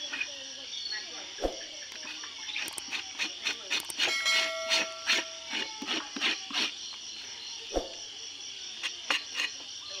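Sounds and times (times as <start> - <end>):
knife scraping animal skin: 0.0 - 0.4, 1.9 - 6.8, 8.8 - 9.6
insects chorus: 0.0 - 10.0.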